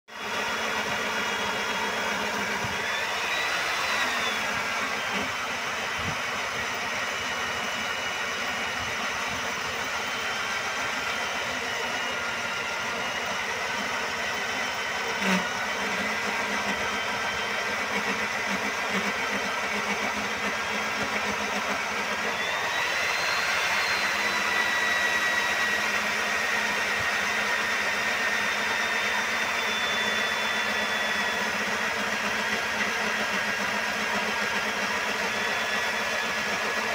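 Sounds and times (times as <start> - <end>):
core drill motor whine: 0.1 - 36.9.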